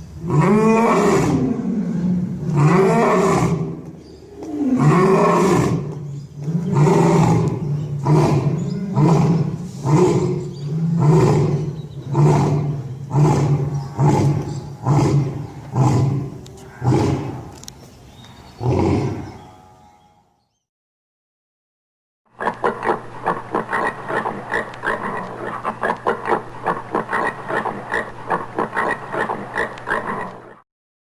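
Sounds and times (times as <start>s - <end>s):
lion roaring: 0.2s - 17.6s, 18.6s - 19.4s.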